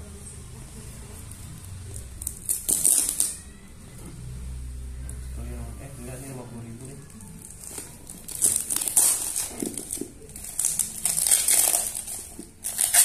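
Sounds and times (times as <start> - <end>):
paper and tape crinkling: 1.9 - 3.5, 7.1 - 13.0.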